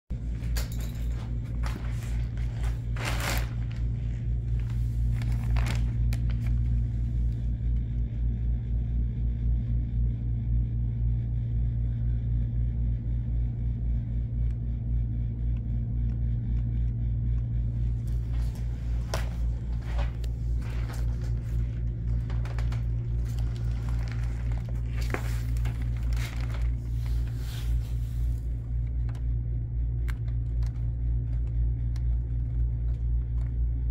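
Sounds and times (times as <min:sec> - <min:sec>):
steady low hum: 0:00.0 - 0:33.9
plastic wrapping rustling: 0:01.1 - 0:06.8, 0:18.1 - 0:28.4.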